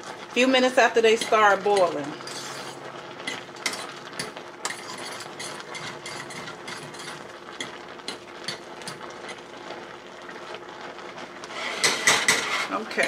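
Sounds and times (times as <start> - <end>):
fork scraping metal pot: 1.2 - 2.8, 4.6 - 7.2, 11.5 - 12.8.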